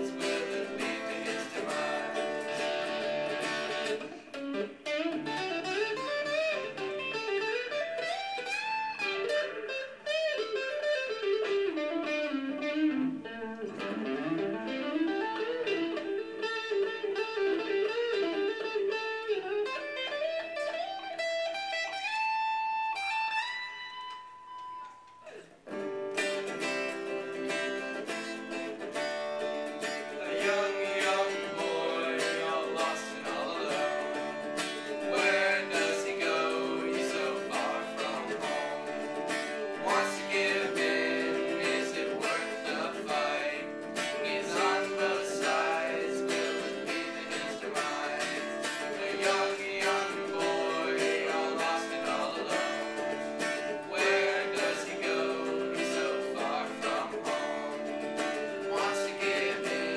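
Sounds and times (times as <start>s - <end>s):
boys singing: 0.0s - 3.2s, 30.0s - 34.4s, 35.0s - 53.0s, 53.8s - 57.4s, 58.6s - 59.9s
electric guitar strumming chords: 0.0s - 59.9s.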